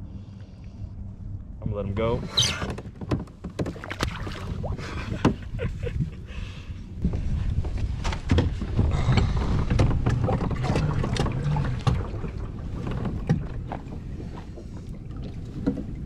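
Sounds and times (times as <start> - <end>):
water splashing: 3.6 - 5.3.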